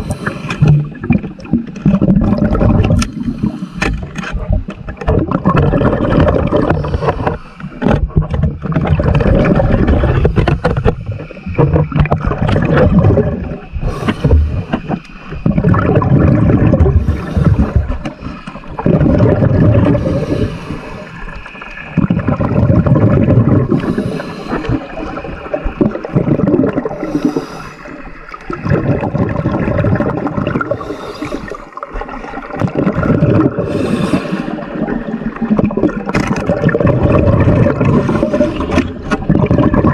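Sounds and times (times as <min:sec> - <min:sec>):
regulator hiss on inhale: 0:00.0 - 0:00.7, 0:03.0 - 0:04.3, 0:06.8 - 0:07.8, 0:13.8 - 0:15.4, 0:17.0 - 0:18.6, 0:20.0 - 0:21.9, 0:23.7 - 0:25.4, 0:27.0 - 0:28.3, 0:30.8 - 0:31.8, 0:33.6 - 0:34.7
exhaled bubbles gushing: 0:00.0 - 0:39.9.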